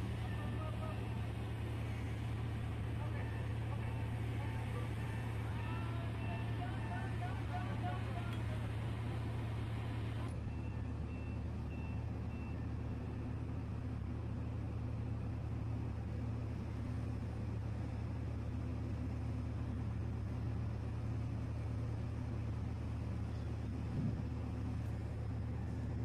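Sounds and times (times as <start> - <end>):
ship diesel engines droning: 0.0 - 26.0.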